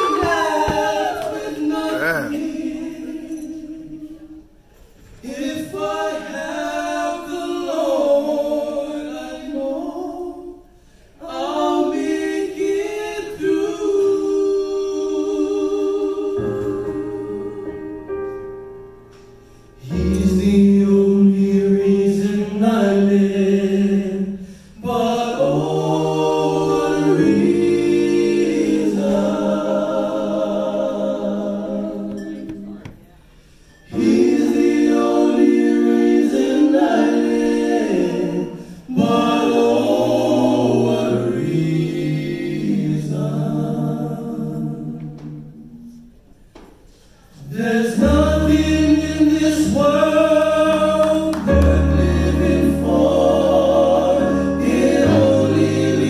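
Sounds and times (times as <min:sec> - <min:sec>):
male vocal group singing harmony: 0:00.0 - 0:18.1, 0:19.6 - 0:46.0, 0:47.0 - 0:56.0.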